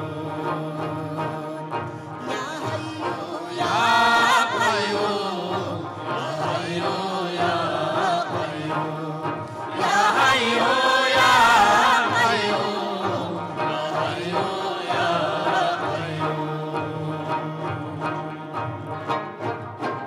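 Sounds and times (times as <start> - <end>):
plucked long-necked lutes: 0.0 - 20.0
singers and chorus singing: 0.0 - 20.0.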